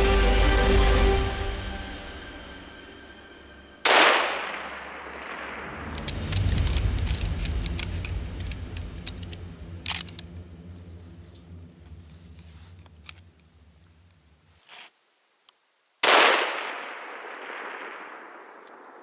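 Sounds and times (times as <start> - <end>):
rifle shot echo: 3.8 - 8.9, 16.0 - 19.0
low rumble: 4.5 - 14.4
sharp clicks and snaps: 5.8 - 10.5.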